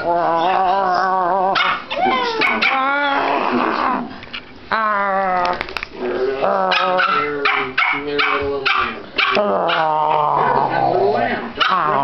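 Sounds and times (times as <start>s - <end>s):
dog whining and howling: 0.0s - 4.0s.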